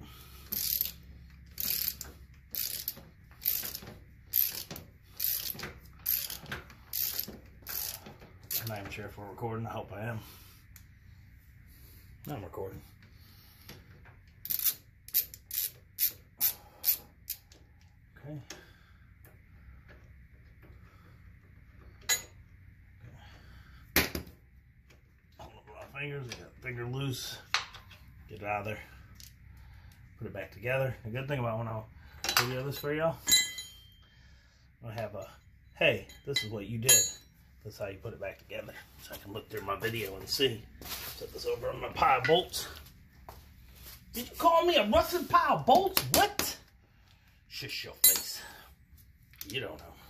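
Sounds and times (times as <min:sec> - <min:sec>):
ratchet wrench clicking: 0:00.5 - 0:08.7, 0:14.4 - 0:17.5
sharp metallic clink: 0:33.2 - 0:34.0, 0:36.0 - 0:37.4.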